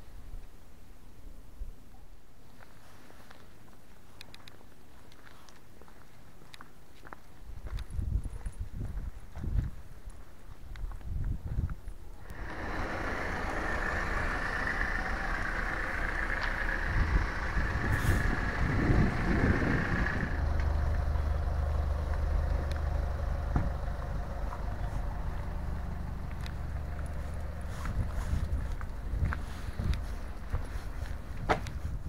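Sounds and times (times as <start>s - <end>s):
vehicle engine running: 12.2s - 32.0s.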